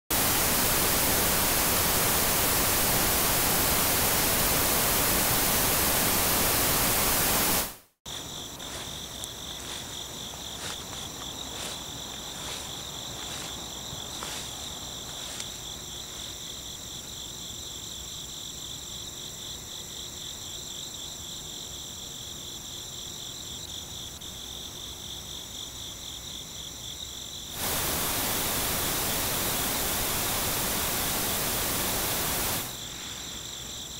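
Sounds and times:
loud static hiss: 0.0 - 16.2, 27.5 - 33.9
crickets chirring: 8.1 - 33.9.

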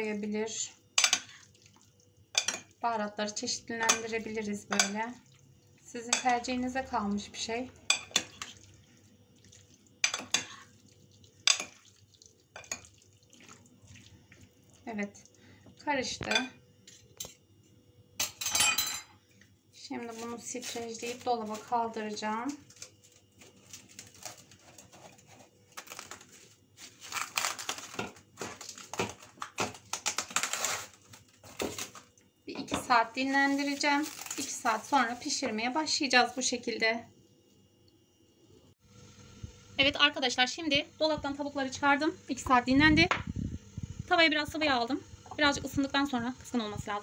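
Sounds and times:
spoons stirring chicken: 3.8 - 5.3, 9.6 - 14.8
spoon clinking against glass: 18.2 - 19.1
cling film crinkling: 20.0 - 32.1, 33.2 - 35.4.

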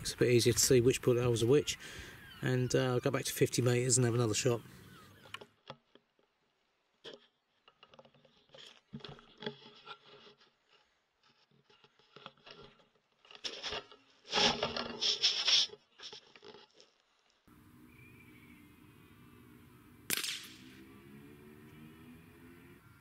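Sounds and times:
rifle handling scraping: 7.0 - 17.3.

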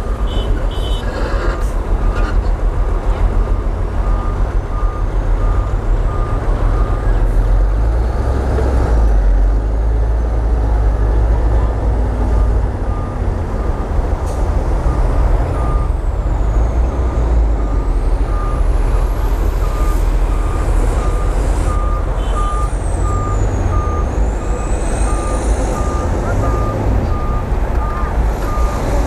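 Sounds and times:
reversing alarm beeps: 15.6 - 16.0, 17.6 - 18.6, 19.6 - 28.8.

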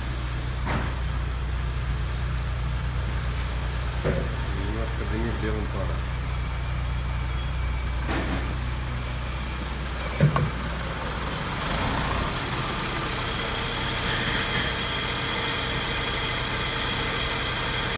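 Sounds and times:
car engine idling: 0.0 - 17.9.

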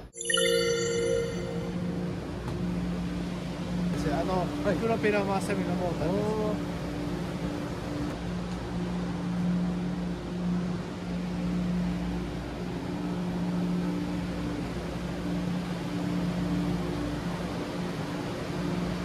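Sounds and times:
engine room machinery hum: 1.7 - 19.0.

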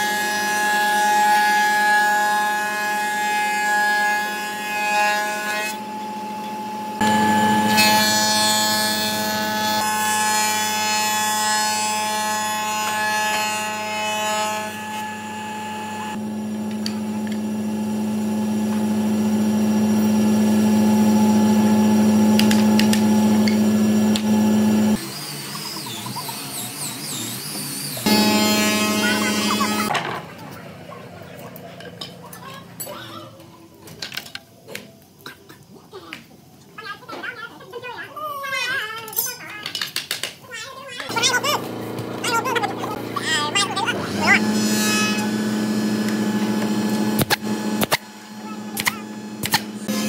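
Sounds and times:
woodworking machine cutting wood: 0.0 - 30.0, 41.1 - 50.0
motor hum: 26.5 - 29.9, 41.1 - 50.0.

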